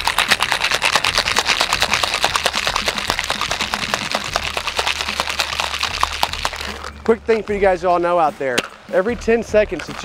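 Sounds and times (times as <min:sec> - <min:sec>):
ice rattling in cocktail shaker: 0:00.0 - 0:07.0.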